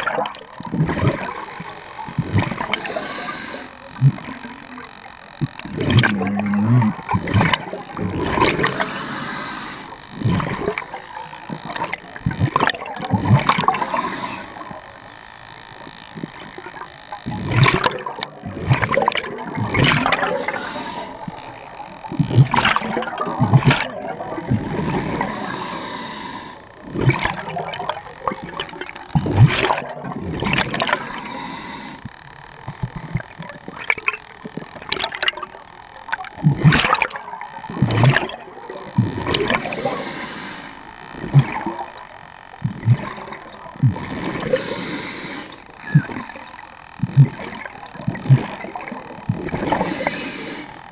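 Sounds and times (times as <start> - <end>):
bubbles gurgling underwater: 0.0 - 2.8, 5.4 - 8.8, 10.1 - 10.9, 11.6 - 14.0, 16.2 - 20.6, 22.0 - 25.4, 26.8 - 31.0, 34.8 - 39.8, 41.2 - 42.0, 42.6 - 44.6, 47.0 - 49.8
regulator air hiss: 2.7 - 3.9, 8.5 - 11.9, 13.6 - 15.2, 20.0 - 22.0, 24.2 - 26.9, 30.9 - 33.2, 39.5 - 41.0, 44.4 - 45.7, 49.7 - 50.9.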